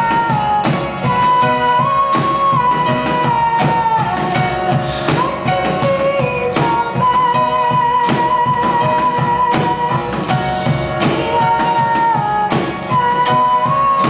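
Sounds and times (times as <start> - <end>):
drum kit: 0.0 - 14.0.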